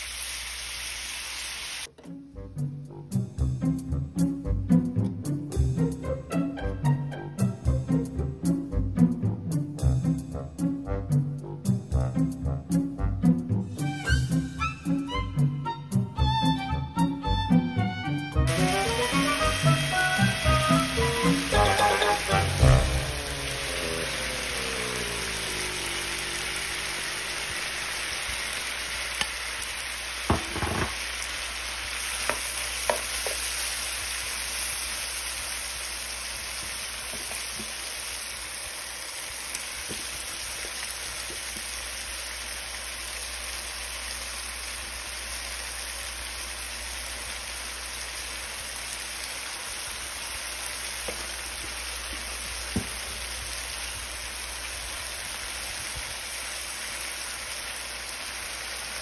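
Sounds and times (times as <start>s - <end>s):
seafood sizzling in a pan: 0.0s - 1.9s, 18.5s - 59.0s.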